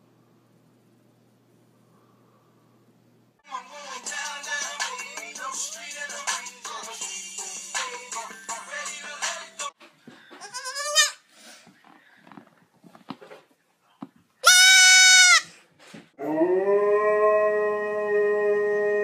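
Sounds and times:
husky howling: 0:16.2 - 0:19.0.

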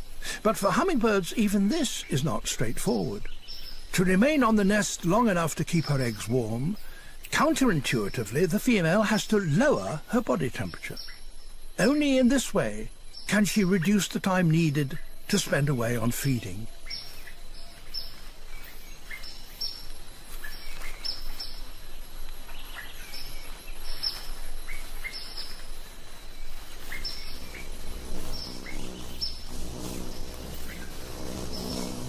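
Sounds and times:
forest ambience hiss: 0:00.0 - 0:32.0
small birds chirping: 0:00.0 - 0:32.0
low hum: 0:23.8 - 0:32.0.

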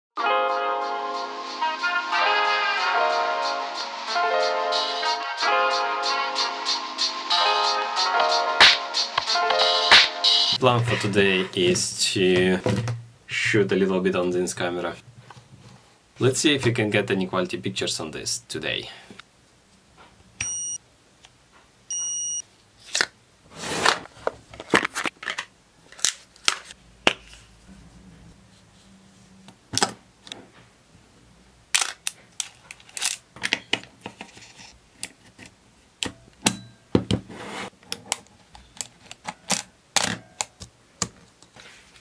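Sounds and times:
short electronic beeps: 0:20.4 - 0:20.8, 0:21.9 - 0:22.4
film camera clicks and snaps: 0:31.8 - 0:33.2.

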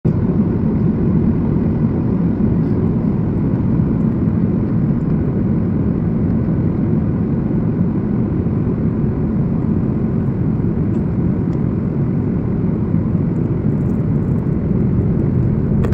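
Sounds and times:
jet engine rumble: 0:00.1 - 0:15.9.

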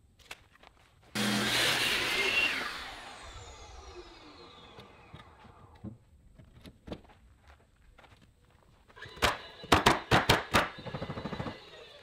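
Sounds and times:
power saw winding down: 0:01.2 - 0:05.8.

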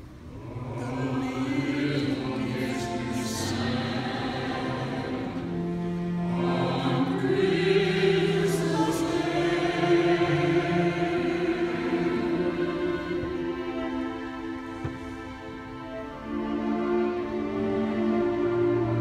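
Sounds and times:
chorus singing: 0:00.0 - 0:19.0
soprano singing: 0:00.0 - 0:19.0
orchestra playing: 0:00.8 - 0:19.0.

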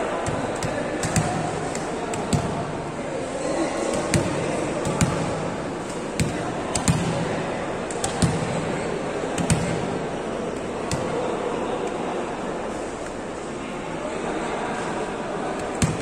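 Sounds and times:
people talking: 0:00.0 - 0:16.0
volleyball thudding: 0:00.1 - 0:02.8, 0:03.8 - 0:10.0, 0:10.6 - 0:11.4, 0:15.6 - 0:16.0.

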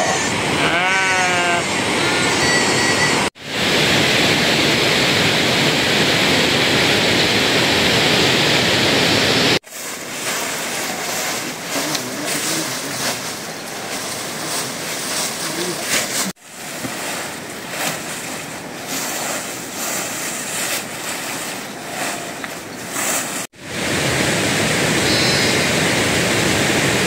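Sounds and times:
sheep bleating: 0:00.6 - 0:02.6
steady rushing noise: 0:01.3 - 0:27.0.

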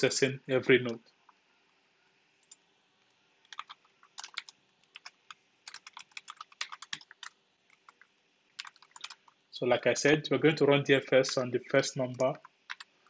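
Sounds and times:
keyboard typing clicks: 0:02.4 - 0:02.6, 0:03.4 - 0:09.4, 0:12.1 - 0:12.9.

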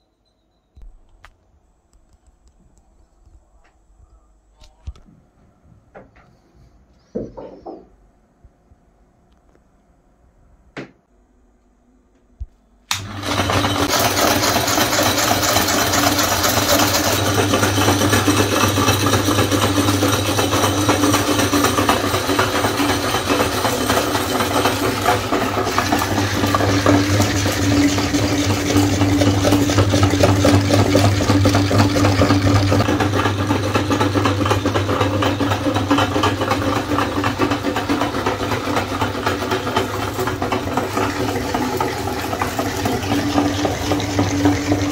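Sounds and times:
meat grinder humming and rattling: 0:12.9 - 0:44.9.

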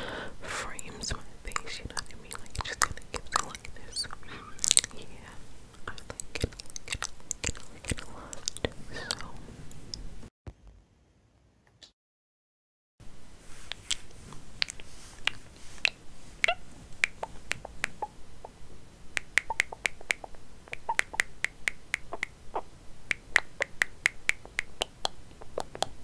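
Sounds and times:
sharp clicks and taps: 0:19.2 - 0:22.4, 0:23.1 - 0:26.0.

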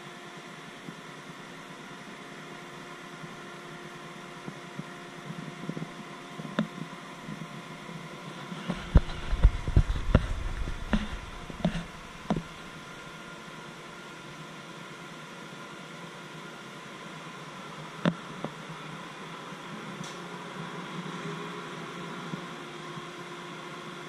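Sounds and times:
ship engine machinery hum: 0:00.0 - 0:24.0
sharp knocks and bumps: 0:08.7 - 0:12.6.

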